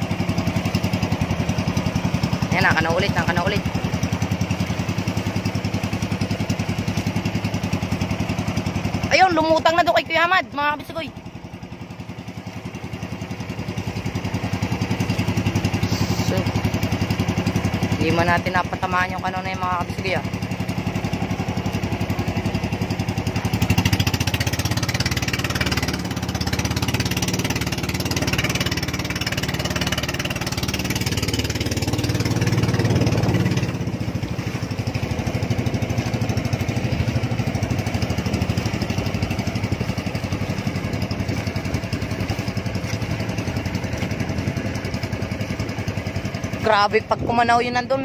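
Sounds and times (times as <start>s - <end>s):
boat engine running: 0.0s - 48.0s.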